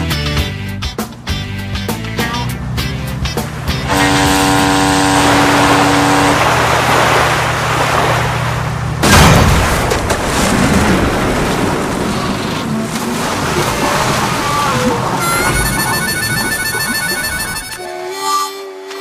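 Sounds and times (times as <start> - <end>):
low engine drone: 0.5 - 9.4, 10.7 - 19.0
ship horn blast: 2.4 - 8.1, 14.6 - 19.0
rushing water: 2.5 - 17.8
splashing water: 3.3 - 17.8
loud crash: 9.0 - 12.4.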